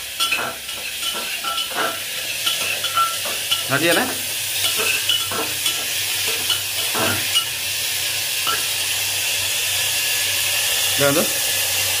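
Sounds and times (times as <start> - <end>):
vegetables sizzling in oil: 0.0 - 12.0
spoon scraping and knocking pot: 0.2 - 7.5.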